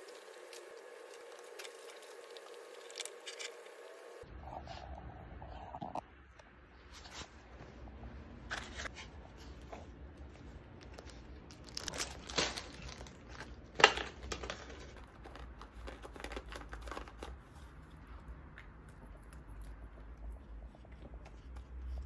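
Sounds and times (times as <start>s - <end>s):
paper crinkling and tearing: 10.8s - 17.7s.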